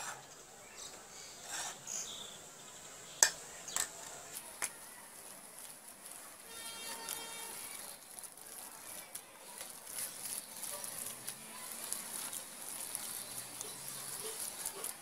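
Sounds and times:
hand kneading dough in bowl: 0:03.9 - 0:15.0.

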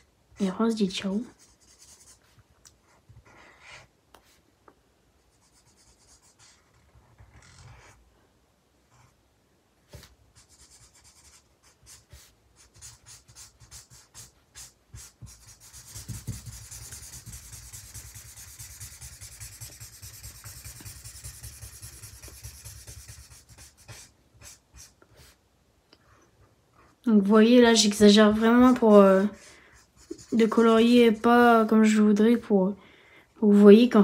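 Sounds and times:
marker scribbling on paper: 0:01.1 - 0:04.4, 0:05.3 - 0:08.0, 0:09.9 - 0:25.4, 0:27.7 - 0:32.4.

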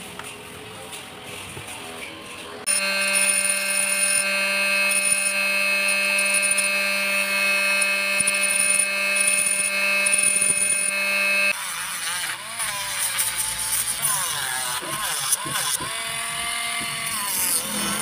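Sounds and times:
rotary tool motor whine: 0:02.6 - 0:18.0
disc grinding steel: 0:02.7 - 0:18.0.

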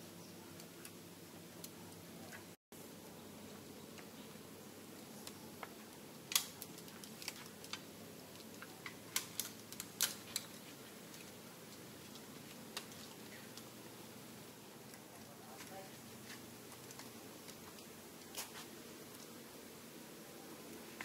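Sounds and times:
faint outdoor hiss: 0:00.0 - 0:21.0.

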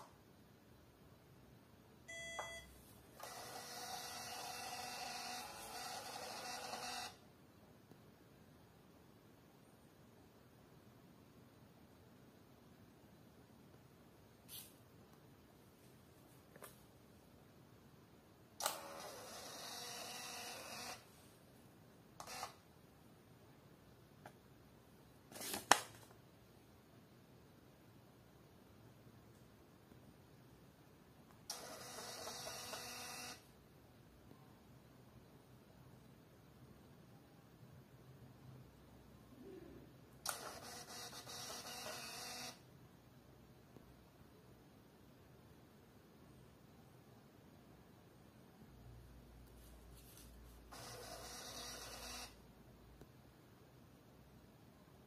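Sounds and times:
printer beep: 0:02.1 - 0:07.2, 0:18.6 - 0:21.0, 0:31.5 - 0:33.4, 0:40.3 - 0:42.6, 0:50.7 - 0:52.4
thermal printer printing: 0:03.2 - 0:07.2, 0:18.6 - 0:21.0, 0:31.5 - 0:33.4, 0:40.3 - 0:42.6, 0:50.7 - 0:52.4.

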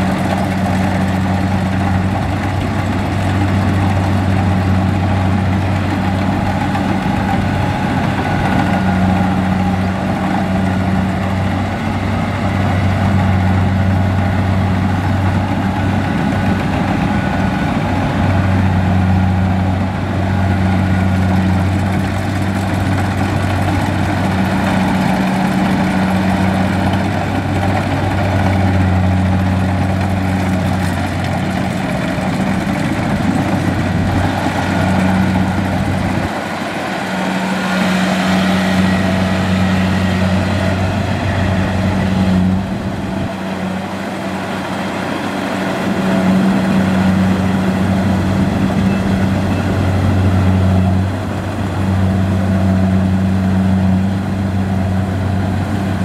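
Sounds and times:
combine harvester diesel engine: 0:00.0 - 0:56.0
low engine hum: 0:00.0 - 0:56.0.

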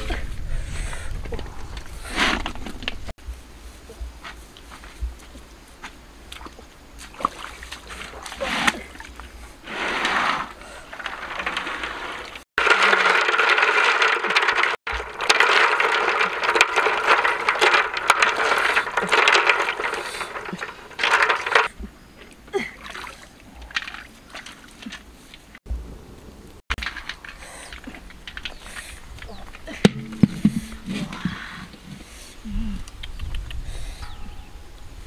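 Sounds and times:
water sloshing: 0:06.3 - 0:09.6, 0:14.9 - 0:25.6
shells clicking and scraping: 0:12.6 - 0:21.7, 0:26.7 - 0:31.1.

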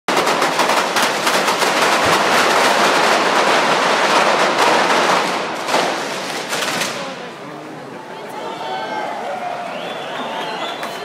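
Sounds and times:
string of firecrackers crackling: 0:00.1 - 0:07.4.

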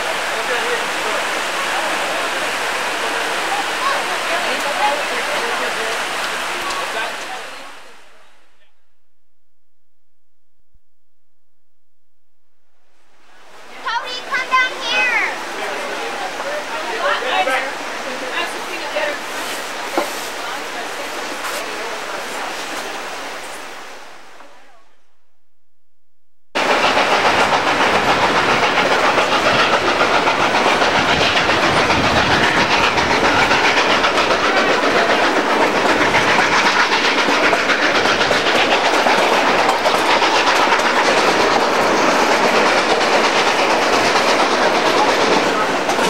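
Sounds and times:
train cars clattering on rails: 0:26.6 - 0:46.0.

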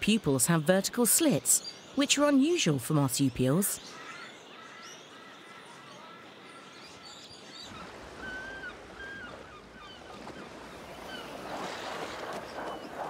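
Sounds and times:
shallow water washing: 0:07.6 - 0:13.0.

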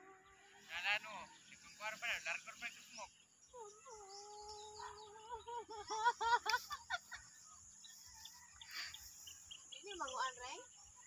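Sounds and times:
girl laughing: 0:05.0 - 0:07.4.

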